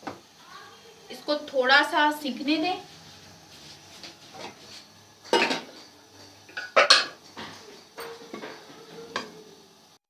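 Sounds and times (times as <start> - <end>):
metal utensils clattering: 5.3 - 5.9.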